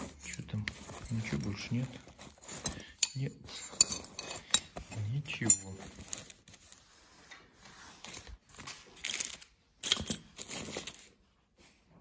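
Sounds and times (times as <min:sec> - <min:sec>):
paper wrapping crinkling: 0:05.4 - 0:07.0.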